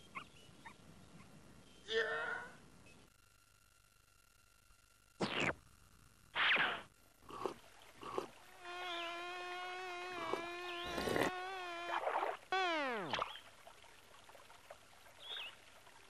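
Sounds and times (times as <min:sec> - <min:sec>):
steady buzzing tone: 0:02.6 - 0:14.5
small blips: 0:02.8 - 0:05.7, 0:06.3 - 0:13.6.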